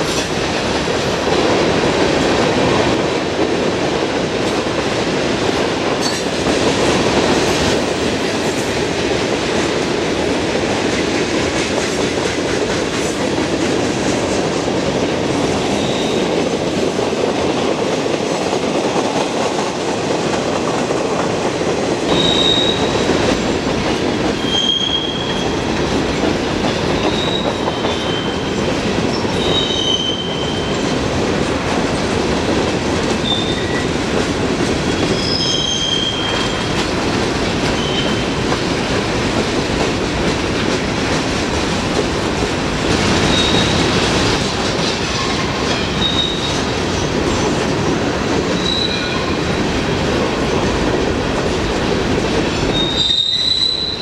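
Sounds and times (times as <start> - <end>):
freight train rolling past: 0.0 - 54.0
wheel squeals: 22.1 - 22.9, 24.4 - 25.6, 27.0 - 28.5, 29.1 - 30.8, 33.2 - 33.8, 35.0 - 36.7, 37.7 - 38.3, 43.3 - 43.8, 45.8 - 46.6, 48.6 - 49.2, 52.7 - 54.0.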